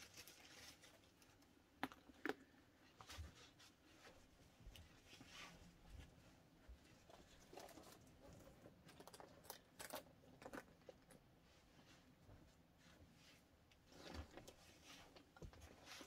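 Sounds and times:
soft rustling: 2.8 - 8.8, 11.1 - 16.0.

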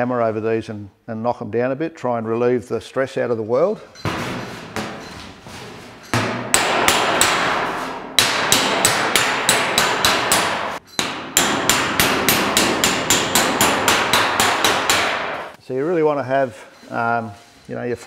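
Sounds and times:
hammer striking steel panel: 6.1 - 15.6.

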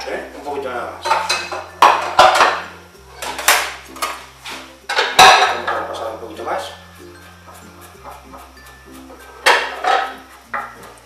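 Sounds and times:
plate knocking: 1.0 - 2.6, 9.4 - 10.8.

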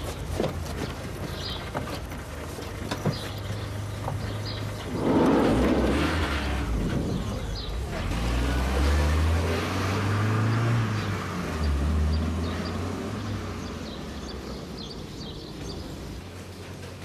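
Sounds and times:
van engine passing by: 3.6 - 17.0.

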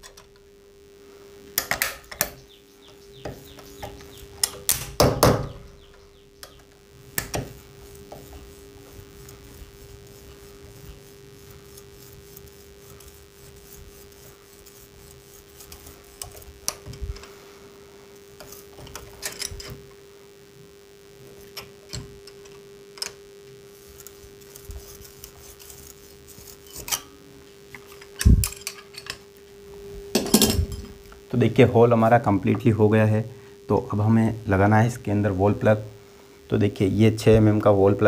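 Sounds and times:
steady hum: 0.0 - 38.0
screwdriver scraping in wall: 7.2 - 17.3, 24.0 - 27.1.

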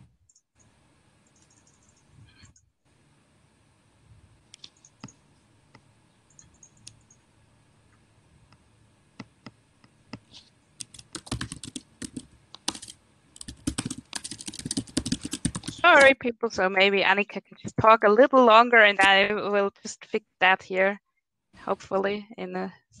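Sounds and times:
keyboard typing: 0.3 - 2.1, 4.6 - 5.2, 6.3 - 7.2, 10.2 - 16.2.

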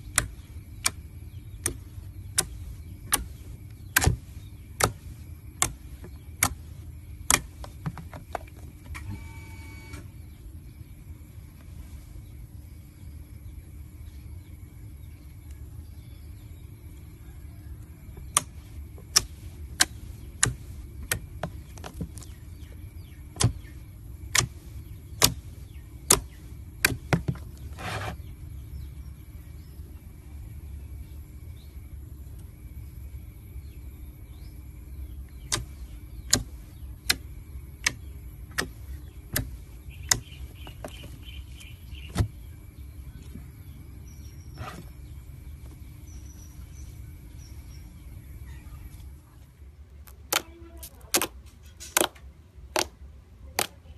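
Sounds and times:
steady low hum: 0.0 - 53.9
slime popping and clicking: 50.0 - 52.9.

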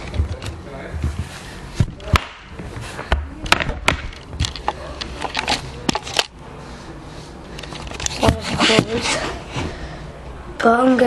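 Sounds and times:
camera handling knocks and rubbing: 7.6 - 9.0.

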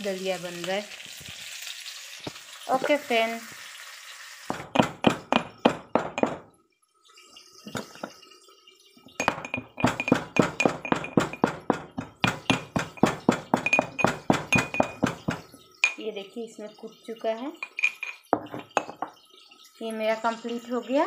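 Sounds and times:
metal pestle pounding in mortar: 4.5 - 6.4, 9.2 - 15.4.

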